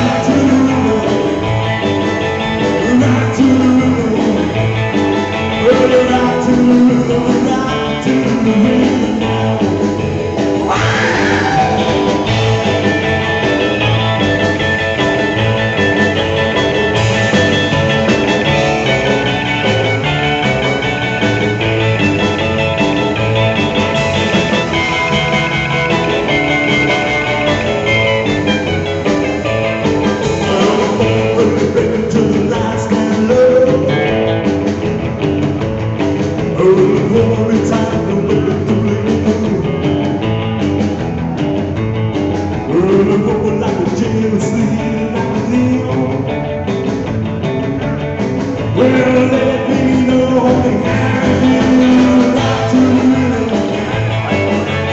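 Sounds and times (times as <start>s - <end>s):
person singing: 0.0s - 1.7s, 2.5s - 9.8s, 10.6s - 12.8s, 30.2s - 34.3s, 36.4s - 40.0s, 42.6s - 46.5s, 48.6s - 54.8s
rock band playing: 0.0s - 54.9s.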